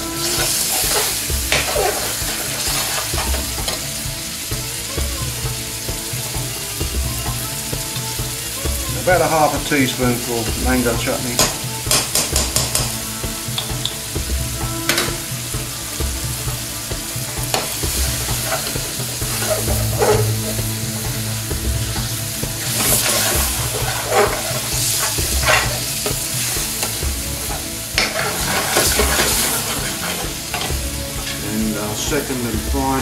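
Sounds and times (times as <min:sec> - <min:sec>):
curry sizzling in a pan: 0:00.0 - 0:33.0
metal spoon scraping a pan: 0:00.1 - 0:04.0, 0:17.5 - 0:21.2, 0:22.2 - 0:31.5.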